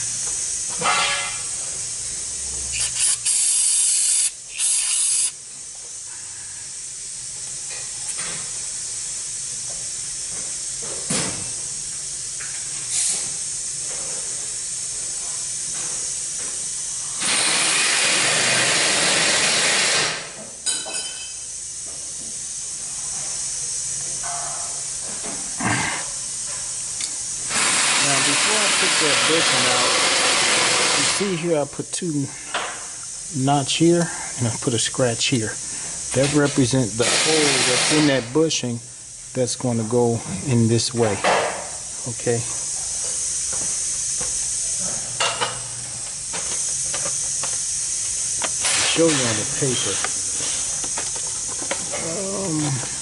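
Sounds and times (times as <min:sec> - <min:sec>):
steady background hiss: 0:00.0 - 0:53.0
pressurised spray blasts: 0:02.7 - 0:05.4, 0:12.9 - 0:13.6, 0:16.7 - 0:20.3, 0:27.4 - 0:31.6, 0:36.1 - 0:38.3.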